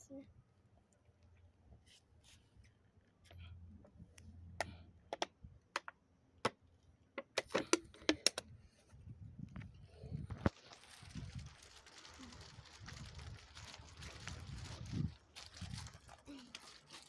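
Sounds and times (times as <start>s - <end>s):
sharp clicks and taps: 4.6s - 6.6s.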